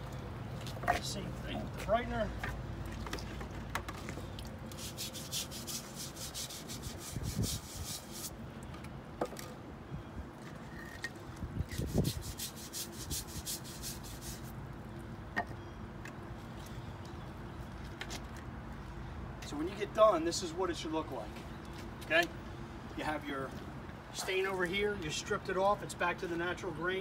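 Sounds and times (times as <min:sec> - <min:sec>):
scrub brush scrubbing wet wood: 0:04.7 - 0:08.4, 0:11.8 - 0:14.6.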